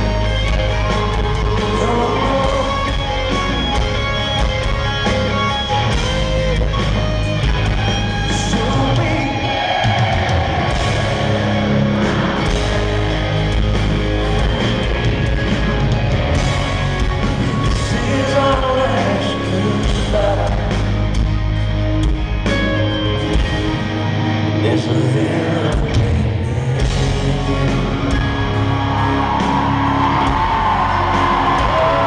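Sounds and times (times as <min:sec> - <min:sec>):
person singing: 0:00.0 - 0:03.7, 0:08.3 - 0:11.4, 0:17.5 - 0:21.0, 0:24.6 - 0:28.4
drums: 0:00.0 - 0:32.0
electric guitars: 0:00.0 - 0:32.0.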